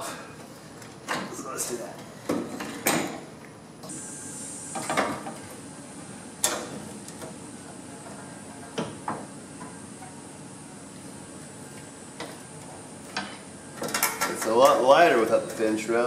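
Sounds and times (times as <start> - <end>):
knocks and clunks of metal parts: 13.1 - 14.8.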